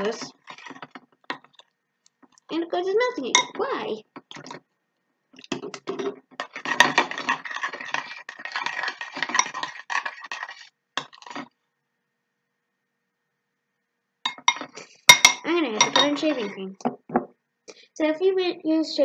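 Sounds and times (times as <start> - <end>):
spoon stirring slime in glass bowl: 0.0 - 2.5, 3.2 - 4.6, 5.4 - 11.6, 14.3 - 16.7.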